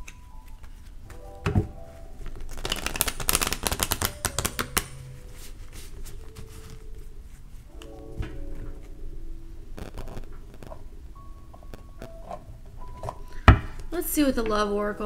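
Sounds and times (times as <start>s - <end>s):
cards being shuffled: 2.2s - 7.1s.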